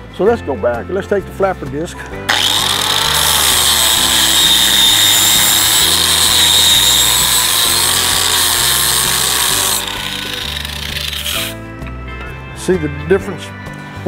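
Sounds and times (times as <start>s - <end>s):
angle grinder sanding metal: 2.3s - 11.6s.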